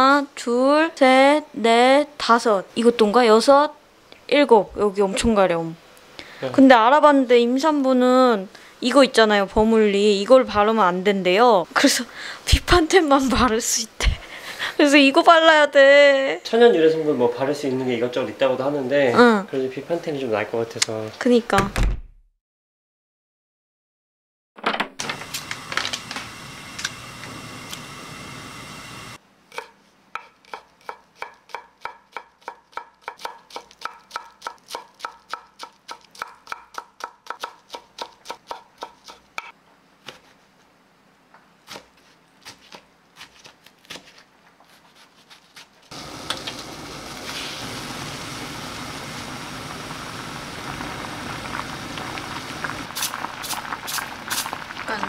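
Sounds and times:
knife chopping on wooden board: 29.5 - 40.2
soup boiling with bubbling hiss: 45.9 - 55.0.

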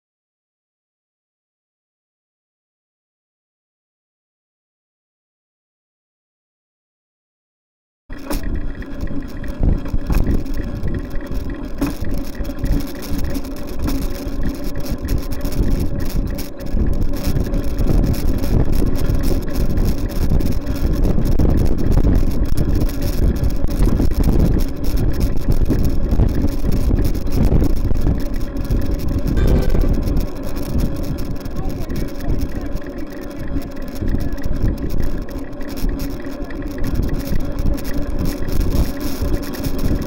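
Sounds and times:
wind buffeting microphone: 8.4 - 13.8, 14.4 - 36.0
road traffic noise: 28.2 - 39.7.

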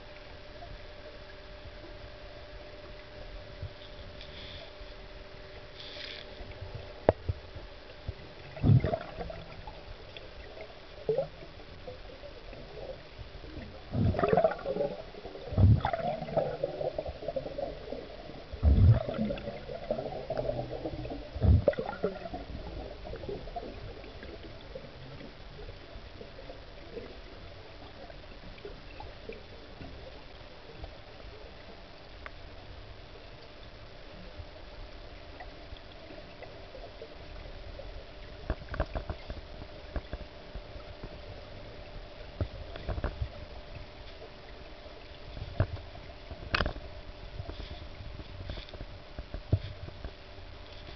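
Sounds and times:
faint steady hum: 0.0 - 50.9
gurgling bubbles: 8.0 - 25.5
dull underwater knocks: 21.4 - 22.0.

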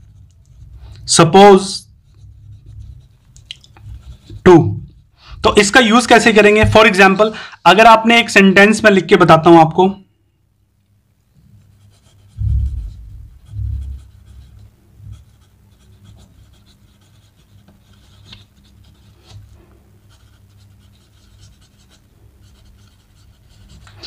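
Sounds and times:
pen nib scratching on paper: 2.0 - 5.0, 11.6 - 24.0
low thumps: 12.3 - 14.0.

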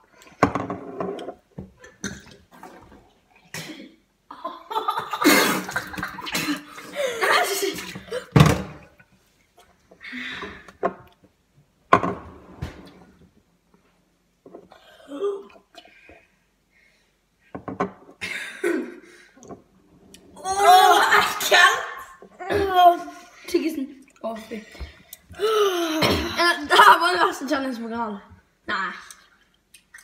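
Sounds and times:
boys gagging and coughing: 3.5 - 8.5, 18.2 - 19.1, 20.4 - 23.3, 25.3 - 27.2.

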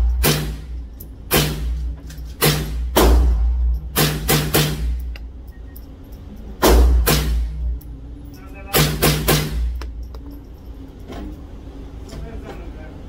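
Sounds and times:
rifle shots in indoor range: 0.0 - 5.8, 6.6 - 7.7.

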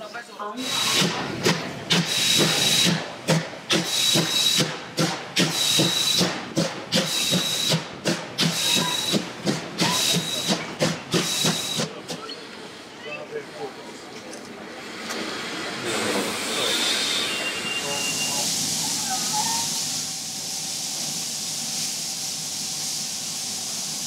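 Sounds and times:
steam locomotive hissing: 0.6 - 12.9, 14.8 - 24.0
low locomotive chuffs: 0.7 - 14.0.

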